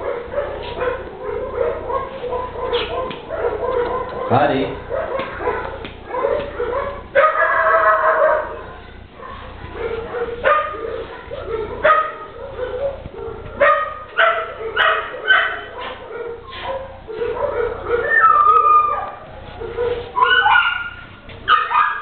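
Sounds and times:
dog barking: 0:00.0 - 0:22.0.

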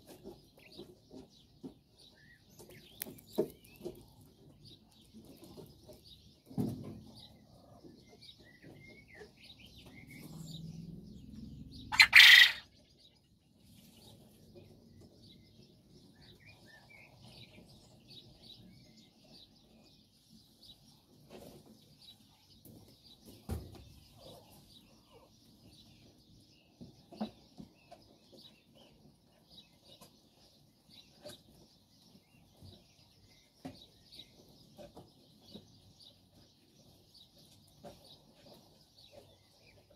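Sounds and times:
quail calling softly: 0:11.9 - 0:12.7.

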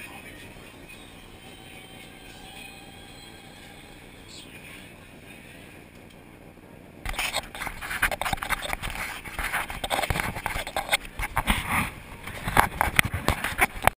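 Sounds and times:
camera handling knocks and rubbing: 0:07.1 - 0:11.7.

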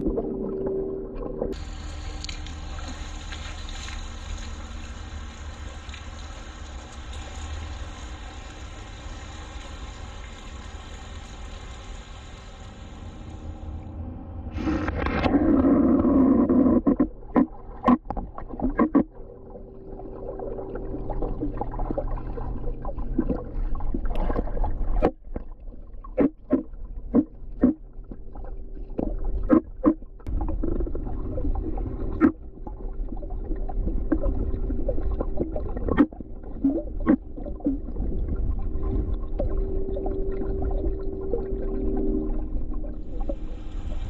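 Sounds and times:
faint steady hum: 0:00.0 - 0:44.0
underwater low rumble: 0:00.0 - 0:44.0
underwater clicks and pops: 0:16.8 - 0:19.1, 0:26.1 - 0:28.2, 0:29.0 - 0:30.6.

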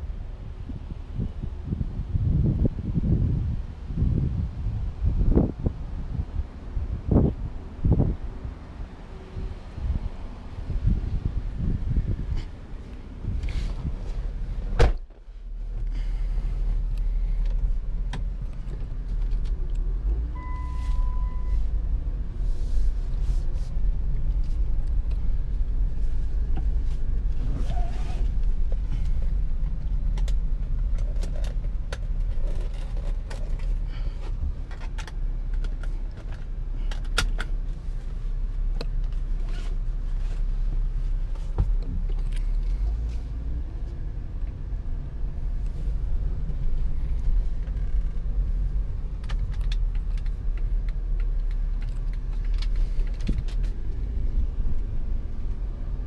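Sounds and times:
minivan engine running: 0:00.0 - 0:56.0
single clear beep: 0:20.3 - 0:21.6.

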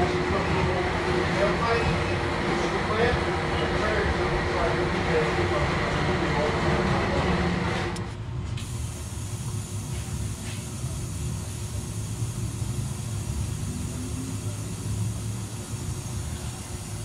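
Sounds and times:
low mechanical rumble: 0:00.0 - 0:17.0
loud hiss: 0:08.6 - 0:17.0.

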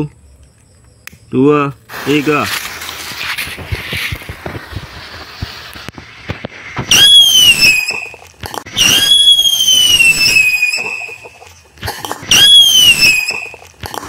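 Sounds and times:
firework fuse hissing: 0:01.8 - 0:14.0
loud shrieking firework whistles: 0:02.0 - 0:11.5, 0:12.2 - 0:13.7.

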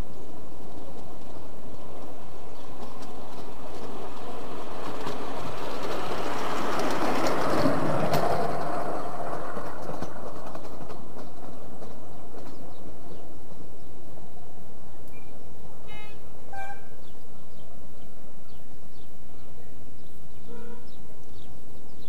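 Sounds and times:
wheels clicking on track: 0:00.0 - 0:17.2
miniature train passing: 0:00.0 - 0:22.0.

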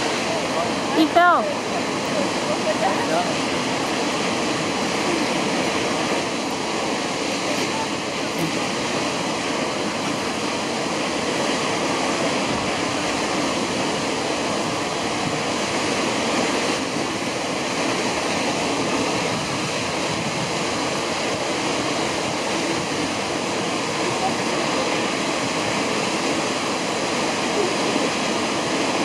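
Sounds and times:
waterfall rushing: 0:00.0 - 0:29.0.

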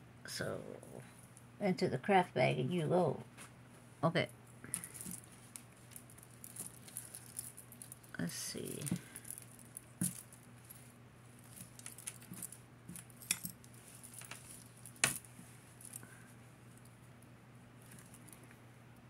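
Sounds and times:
faint electrical hum: 0:00.0 - 0:19.0
jewelry clinking: 0:04.7 - 0:17.0, 0:17.8 - 0:18.5.

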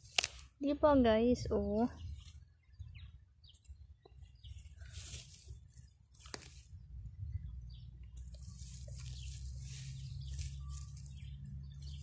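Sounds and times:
leaves and stems rustling: 0:00.0 - 0:00.7, 0:03.6 - 0:06.9, 0:08.2 - 0:12.0
faint bird chirps: 0:01.4 - 0:06.0, 0:06.6 - 0:12.0
low microphone rumble: 0:06.6 - 0:12.0.

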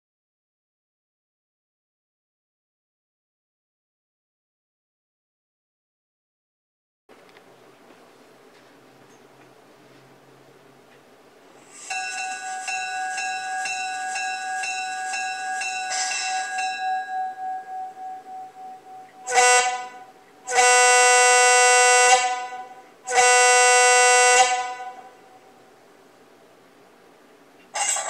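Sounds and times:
model locomotive bell ringing: 0:11.6 - 0:25.8
diesel air horn blasts: 0:19.1 - 0:25.7.

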